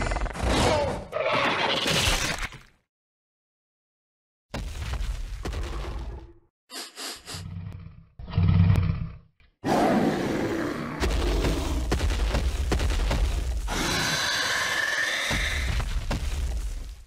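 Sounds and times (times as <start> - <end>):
dinosaur low growl: 7.3 - 11.8
long loud dinosaur roar: 7.5 - 11.8, 13.7 - 15.7
dinosaur high calls: 13.7 - 15.7.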